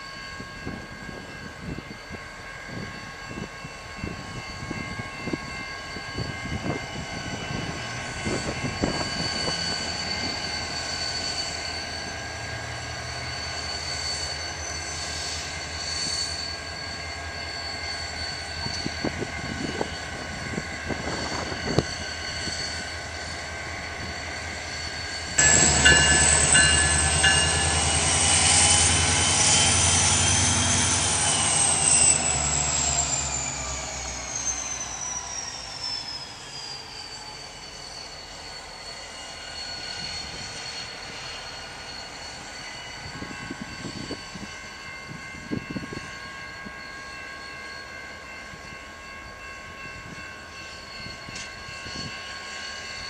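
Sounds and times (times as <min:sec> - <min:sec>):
diesel locomotive engine drone: 0:00.0 - 0:53.0
high whine: 0:06.6 - 0:46.1.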